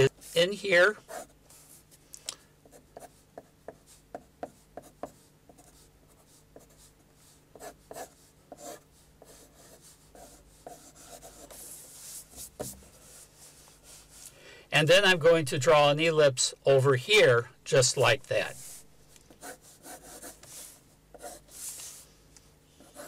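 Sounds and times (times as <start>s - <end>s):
pencil scratching on paper: 0.2s - 1.8s, 2.6s - 14.2s, 19.4s - 22.0s, 22.8s - 23.0s.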